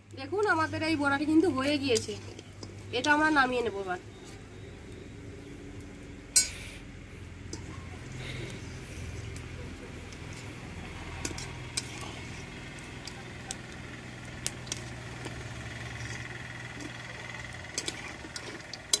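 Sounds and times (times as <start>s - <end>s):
fritters sizzling in oil: 0.0s - 19.0s
metal utensils clinking on pan: 1.3s - 3.3s, 6.4s - 6.6s, 7.5s - 7.9s, 11.1s - 12.2s, 17.3s - 19.0s.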